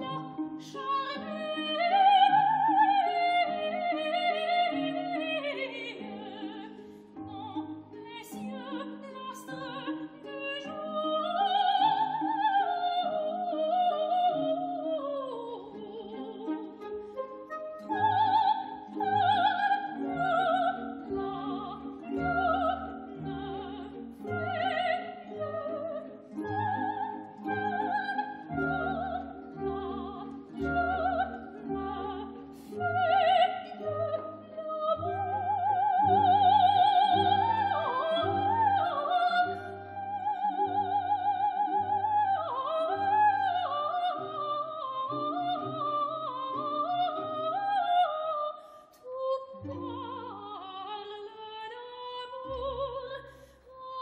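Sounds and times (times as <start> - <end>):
soprano singing opera: 0.0 - 54.0.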